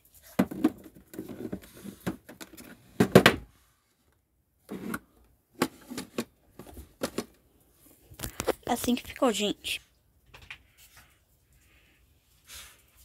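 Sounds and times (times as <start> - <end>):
objects knocking on a shelf: 3.0 - 3.4.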